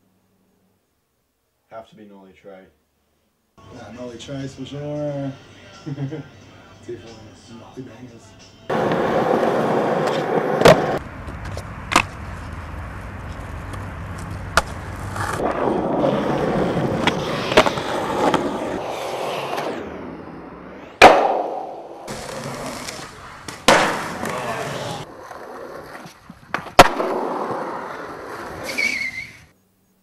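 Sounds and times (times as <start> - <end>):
skateboard popping and landing: 8.7 - 12.6, 13.2 - 29.3
skateboard wheels rolling on concrete: 8.7 - 29.6.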